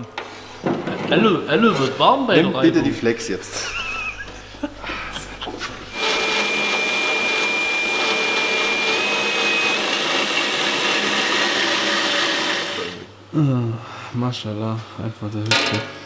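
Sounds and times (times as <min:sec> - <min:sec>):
angle grinder whining: 0:00.0 - 0:13.1.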